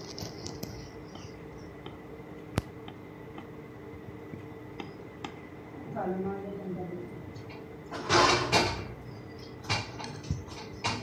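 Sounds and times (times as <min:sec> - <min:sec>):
hand rolling ball in flour: 0:00.0 - 0:02.0
steady low hum: 0:00.0 - 0:11.0.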